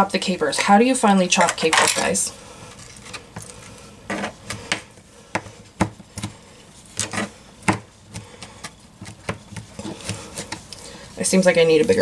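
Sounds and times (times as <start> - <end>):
knife chopping on plastic board: 4.1 - 6.4, 7.0 - 10.6.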